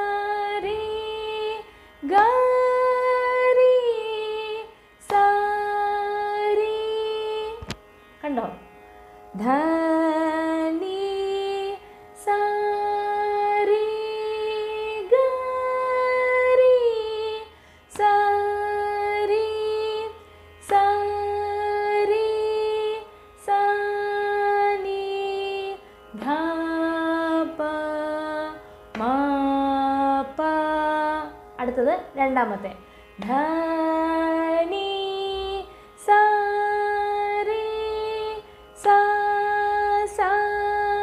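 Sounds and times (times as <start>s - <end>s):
woman singing vocal exercise: 9.4s - 41.0s.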